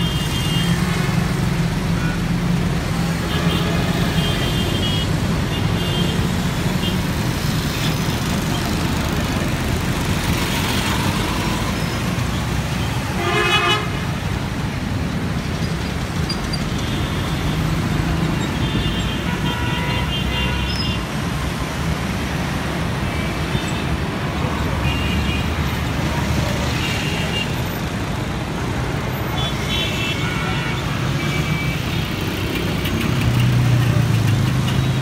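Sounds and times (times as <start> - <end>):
busy road traffic: 0.0 - 35.0
loud vehicle horn blast: 13.1 - 14.0, 19.2 - 20.8.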